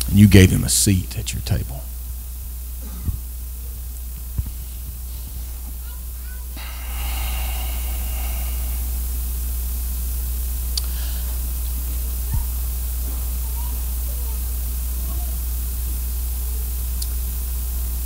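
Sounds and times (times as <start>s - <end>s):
steady hiss: 0.0s - 18.0s
low hum: 6.5s - 13.0s.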